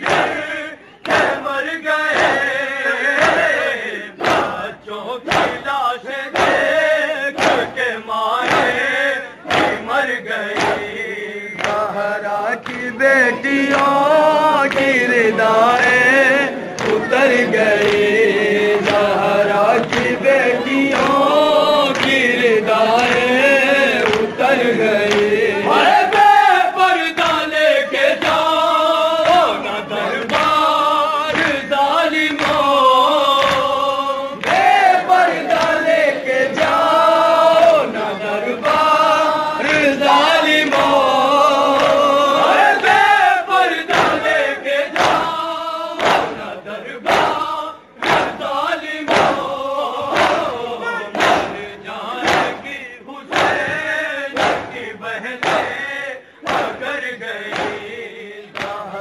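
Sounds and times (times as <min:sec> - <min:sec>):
chest-beating slaps: 0:00.0 - 0:03.6, 0:04.2 - 0:12.0, 0:16.7 - 0:20.3, 0:21.9 - 0:22.4, 0:23.9 - 0:25.4, 0:27.1 - 0:35.9, 0:43.8 - 0:45.4, 0:46.0 - 0:58.9
men chanting in unison: 0:00.0 - 0:59.0.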